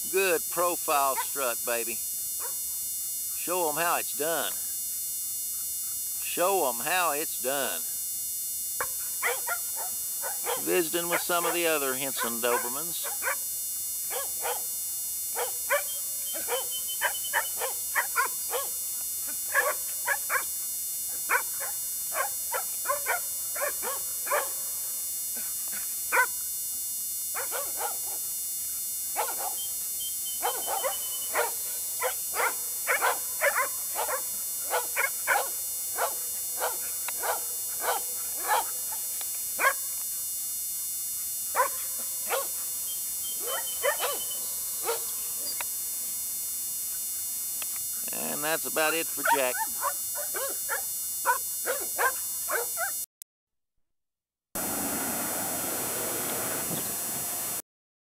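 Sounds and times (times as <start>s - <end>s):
dogs barking: 8.8s - 13.5s, 14.1s - 14.7s, 15.4s - 20.5s, 21.1s - 24.6s, 25.7s - 26.4s, 27.4s - 28.2s, 29.2s - 29.7s, 30.3s - 39.9s, 41.5s - 42.7s, 43.3s - 45.6s, 49.2s - 53.0s.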